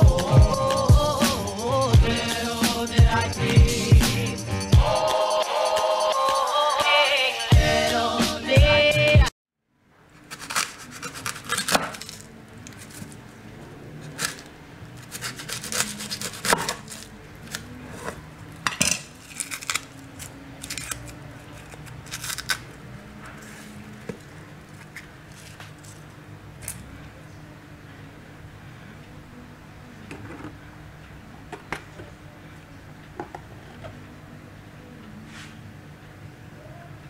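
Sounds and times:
knife cutting on wooden board: 10.3 - 12.2, 15.0 - 17.1.

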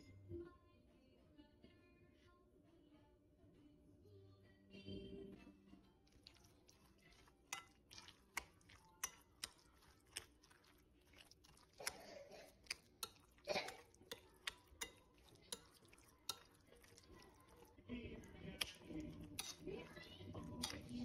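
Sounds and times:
wet squelching of yogurt: 6.0 - 21.0
spoon clicking against bowl: 7.5 - 10.2, 12.6 - 17.0.

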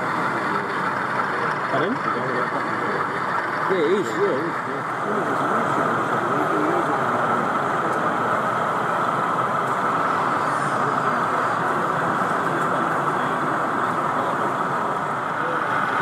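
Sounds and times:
continuous rushing hum: 0.0 - 16.0.

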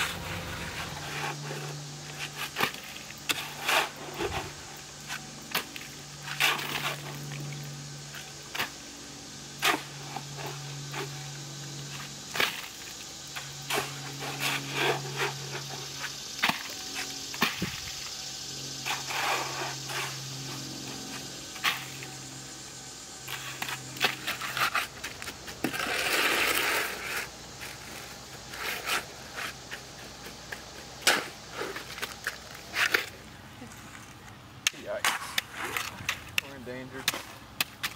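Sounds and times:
shovel scraping wet concrete: 0.0 - 7.4, 9.6 - 11.2, 13.7 - 17.7, 18.8 - 22.0, 23.3 - 29.8, 31.0 - 33.2, 34.7 - 37.9.

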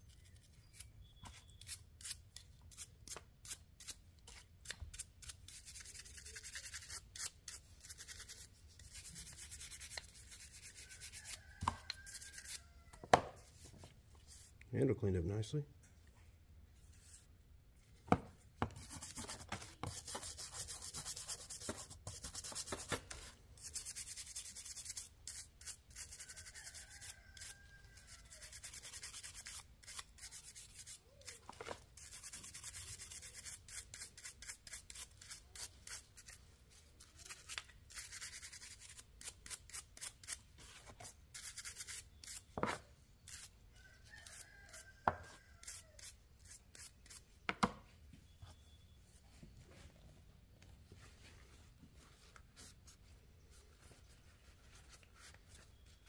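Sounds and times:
abrasive scrubbing a knife: 0.4 - 12.7, 23.6 - 31.4, 43.3 - 47.2.

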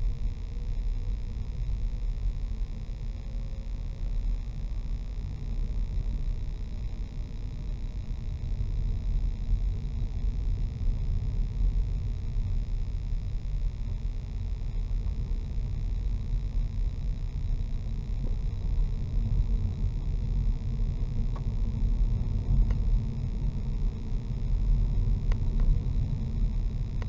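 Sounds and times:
car tyres and engine rumble: 16.5 - 27.0
faint ticks: 18.2 - 18.8, 21.2 - 23.3, 25.0 - 27.0.

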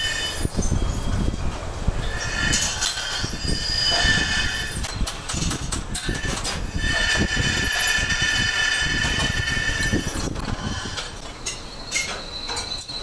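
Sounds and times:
metal lathe running: 0.0 - 0.5, 2.0 - 4.9, 6.0 - 11.2
cutting tool high-pitched squeal: 0.0 - 1.2, 2.0 - 5.0, 6.0 - 13.0
sharp clicks and knocks: 4.8 - 6.6.

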